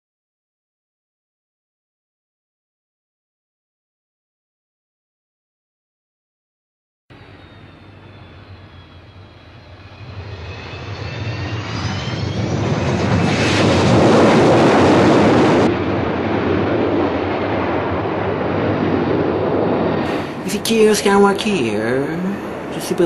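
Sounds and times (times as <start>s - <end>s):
faint rising whine: 7.1s - 23.0s
spaceship engine roar: 7.1s - 23.0s.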